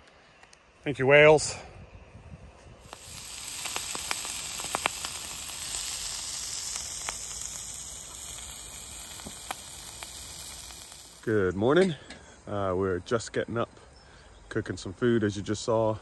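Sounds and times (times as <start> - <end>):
bacon sizzling in a frying pan: 2.8 - 11.4.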